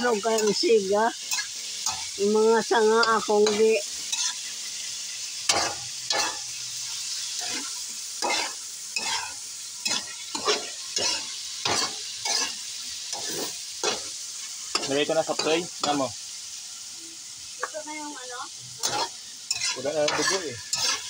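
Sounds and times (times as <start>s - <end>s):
meat sizzling in a wok: 0.0s - 21.0s
metal ladle scraping wok: 3.0s - 4.5s, 5.5s - 6.5s, 7.3s - 16.0s, 18.7s - 21.0s.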